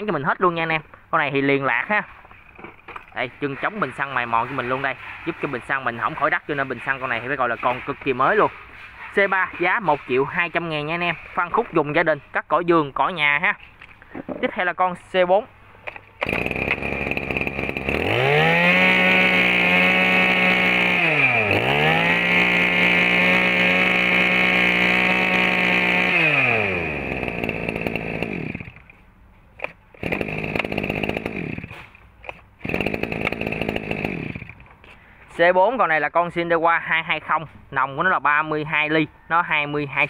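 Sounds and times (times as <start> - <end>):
brush cutter engine revving: 2.5 - 11.7, 15.9 - 29.0, 29.6 - 34.8.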